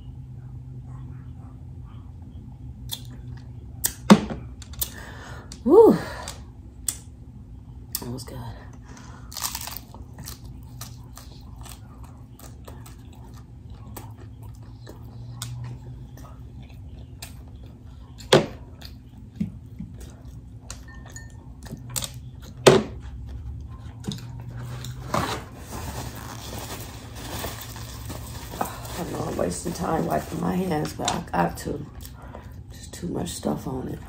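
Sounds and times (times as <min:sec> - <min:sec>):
chewing crunchy taco: 0:09.0 - 0:29.3
paper towel rustling: 0:25.0 - 0:30.8.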